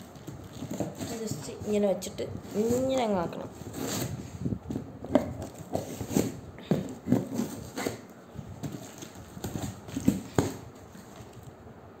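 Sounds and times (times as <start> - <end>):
knife scraping cardboard: 3.6 - 4.3, 5.1 - 11.2.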